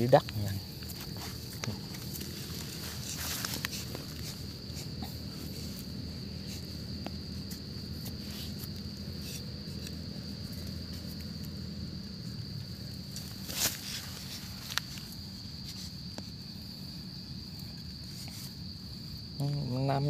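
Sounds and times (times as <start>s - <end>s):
high insect drone: 0.0s - 20.0s
stick scraping soil and leaves: 0.3s - 11.5s, 12.2s - 16.4s.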